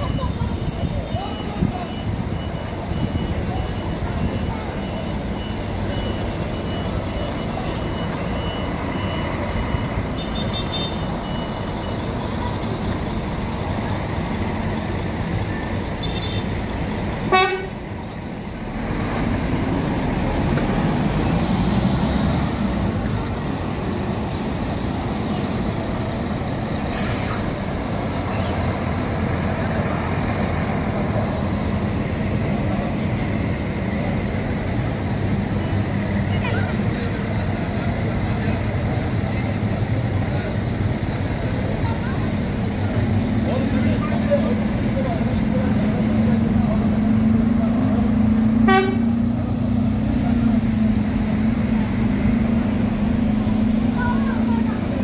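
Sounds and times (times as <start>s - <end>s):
bus engine drone: 0.0s - 55.0s
bus horn toot: 10.2s - 11.1s, 17.2s - 17.8s, 48.6s - 49.3s.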